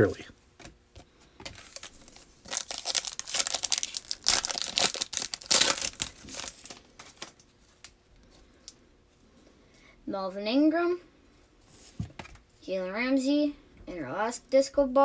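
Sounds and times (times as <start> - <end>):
foil wrapper crinkling and tearing: 1.5 - 8.0.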